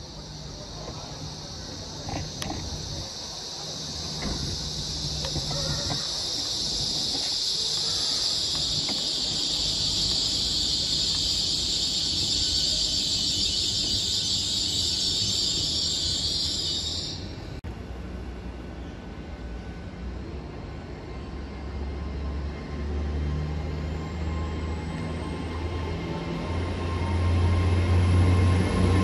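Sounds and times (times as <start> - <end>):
high-pitched train brake squeal: 0.0 - 17.5
diesel engine rumble: 0.0 - 29.0.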